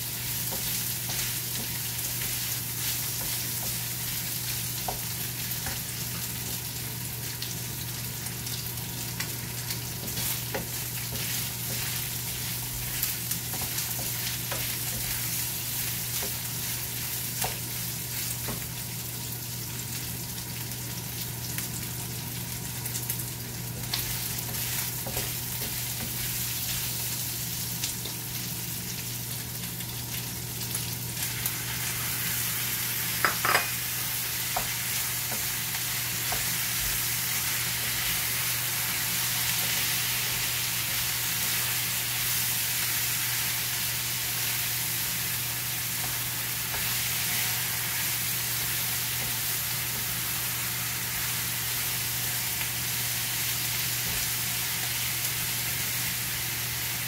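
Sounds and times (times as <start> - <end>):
meat sizzling in frying pan: 0.0 - 57.0
spatula scraping and tapping pan: 33.2 - 33.8.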